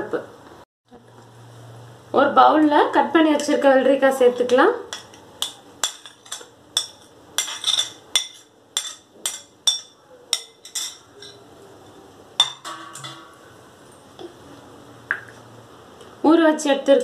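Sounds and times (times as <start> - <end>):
metal spoon clinking on dishes: 4.9 - 11.5, 12.4 - 13.5.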